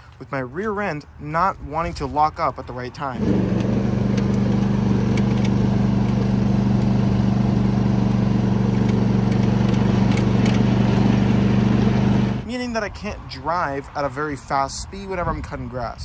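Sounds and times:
lawn tractor engine running: 3.2s - 12.5s.

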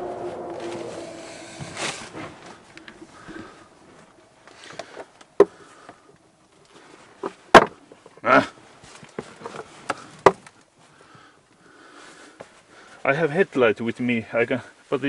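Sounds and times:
scraping rustle: 0.0s - 5.0s.

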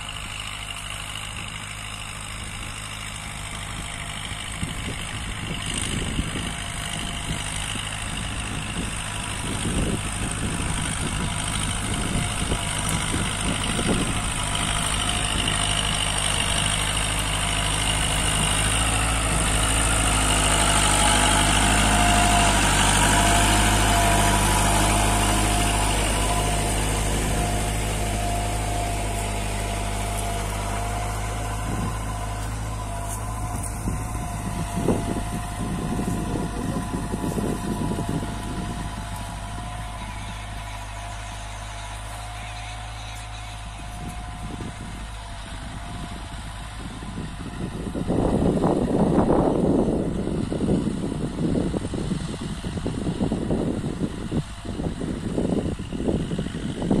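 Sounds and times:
tractor diesel engine under load: 0.0s - 57.0s
irregular low rumbling: 4.5s - 42.2s.

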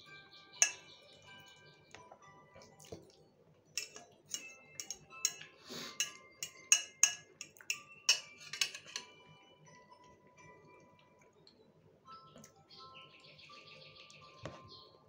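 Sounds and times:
metal fork clinking on glass plate: 0.6s - 0.9s, 3.8s - 9.1s.

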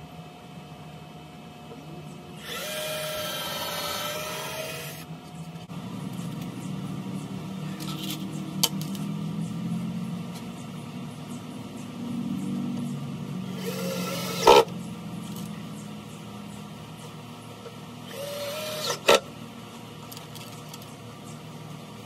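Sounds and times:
cordless drill motor whining: 2.4s - 5.1s, 13.5s - 14.7s, 18.0s - 19.2s.

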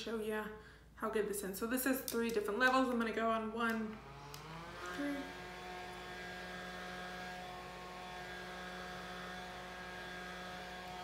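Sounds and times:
handheld fan motor humming: 2.5s - 11.0s.

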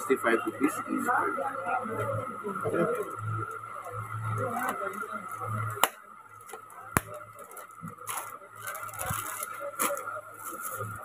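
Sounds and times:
steady background hum: 0.0s - 11.0s
plastic wrapping crinkling: 4.6s - 11.0s.

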